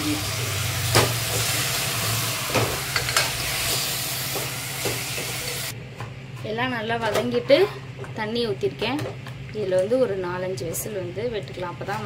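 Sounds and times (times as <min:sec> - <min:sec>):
meat sizzling in a pot: 0:00.0 - 0:05.7.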